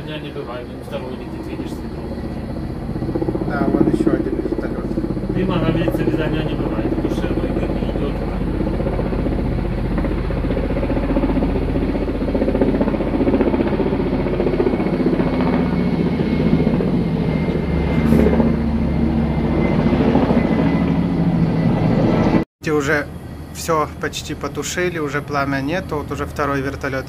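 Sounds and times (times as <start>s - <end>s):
helicopter rotor beating: 0.0s - 27.0s.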